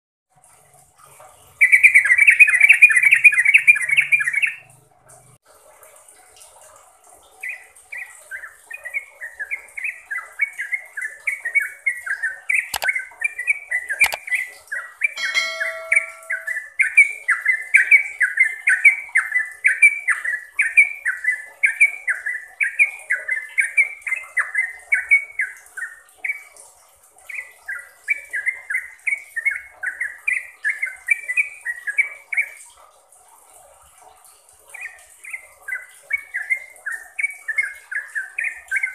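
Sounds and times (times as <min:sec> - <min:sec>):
bird chattering and bubbling song: 0:01.4 - 0:04.7, 0:07.3 - 0:32.6, 0:34.7 - 0:38.9
sharp clicks: 0:12.7 - 0:13.0, 0:14.0 - 0:14.2.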